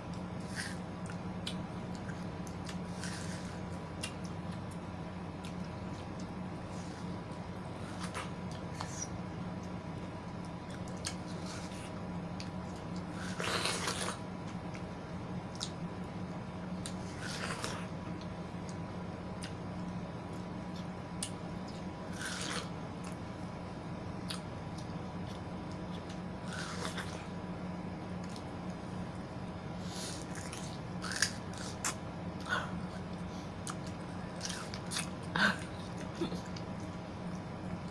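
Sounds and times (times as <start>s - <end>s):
steady low hum: 0.0s - 37.9s
biting and slurping watermelon: 13.1s - 14.2s, 22.1s - 22.7s, 26.4s - 27.3s.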